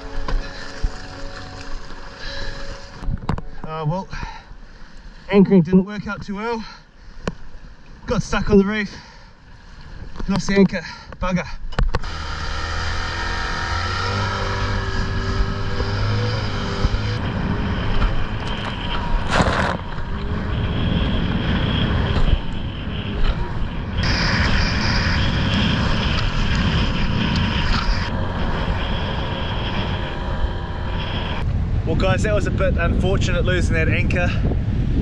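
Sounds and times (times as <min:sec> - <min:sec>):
outboard motor running: 0:00.0 - 0:03.5.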